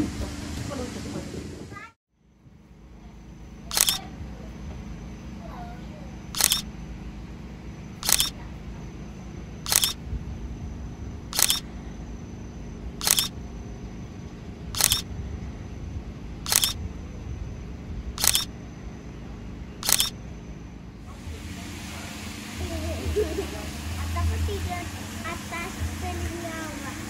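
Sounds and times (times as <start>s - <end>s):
steady low hum: 0.0s - 27.0s
camera shutter clicking: 3.7s - 4.0s, 6.4s - 6.6s, 8.0s - 8.4s, 9.7s - 10.0s, 11.4s - 11.6s, 13.0s - 13.3s, 14.8s - 15.0s, 16.5s - 16.8s, 18.2s - 18.5s, 19.8s - 20.1s.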